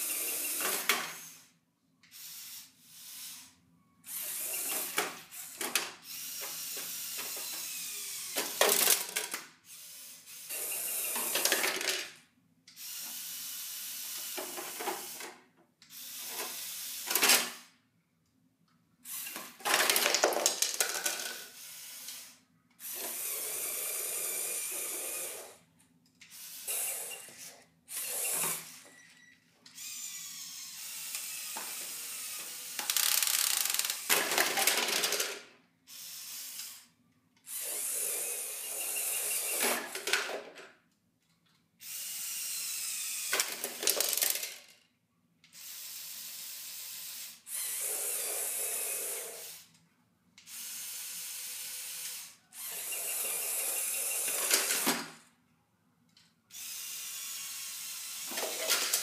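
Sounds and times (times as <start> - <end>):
toy electric motors whirring: 0.0 - 17.8, 19.0 - 29.0, 29.7 - 40.6, 41.8 - 44.9, 45.5 - 49.8, 50.4 - 55.3, 56.5 - 59.0.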